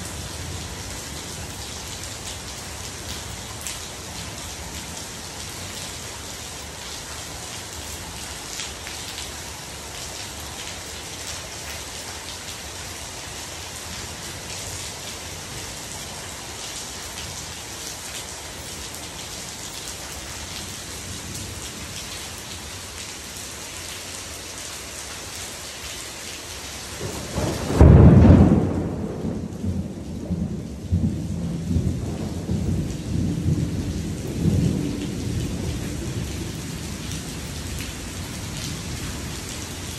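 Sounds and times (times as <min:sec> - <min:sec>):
heavy rain: 0:00.0 - 0:39.9
thunder clap rumbling: 0:27.0 - 0:39.1.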